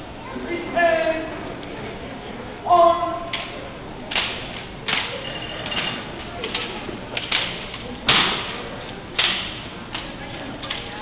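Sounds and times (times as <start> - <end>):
drill rifles slapped and handled: 4.1 - 8.6, 9.2 - 10.9.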